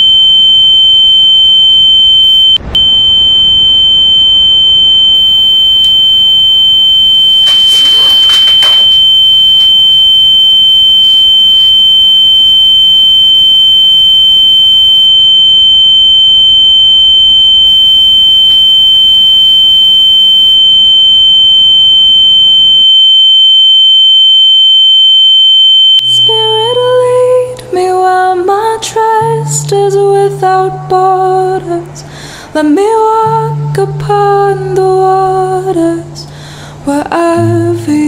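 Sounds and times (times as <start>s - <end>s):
high-pitched electronic tone: 0.0s - 10.4s
fainter lower tone: 0.0s - 14.8s, 25.1s - 30.2s
brief rustle: 7.4s - 9.8s.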